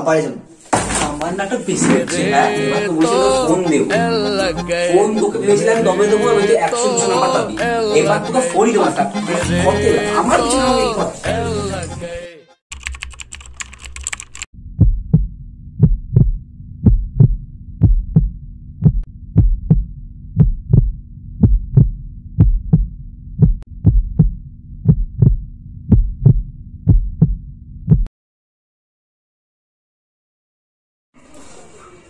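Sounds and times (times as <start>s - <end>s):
rapid crackling clicks: 12.7s - 14.5s
steady low drone: 14.6s - 28.0s
heartbeat thumps: 14.6s - 28.1s.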